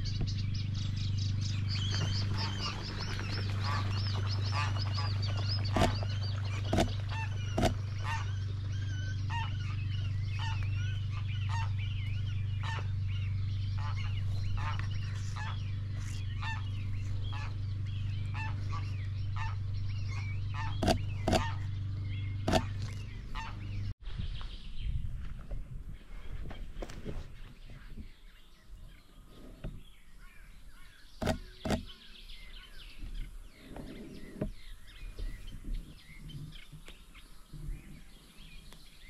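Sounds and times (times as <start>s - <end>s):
steady low hum: 0.0s - 24.2s
songbirds chirping and singing: 0.0s - 39.0s
geese honking: 1.5s - 23.9s.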